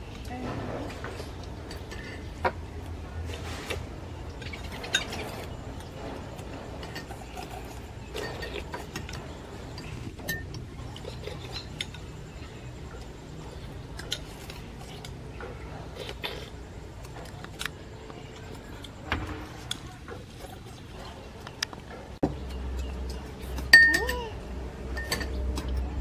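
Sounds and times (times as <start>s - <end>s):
low steady background noise: 0.0s - 26.0s
spoons clinking on ceramic bowls: 23.7s - 24.3s.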